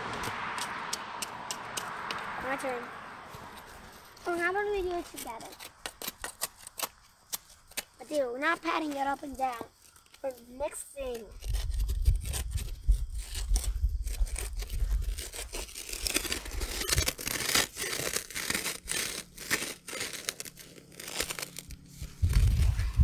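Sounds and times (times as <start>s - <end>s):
concrete mix scraping and crunching: 0.1s - 23.0s
low rumble: 22.0s - 23.0s.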